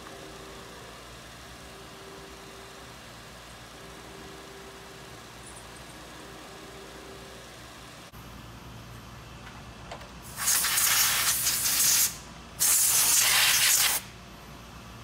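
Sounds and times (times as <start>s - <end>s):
compressed air blasts: 10.2s - 14.1s.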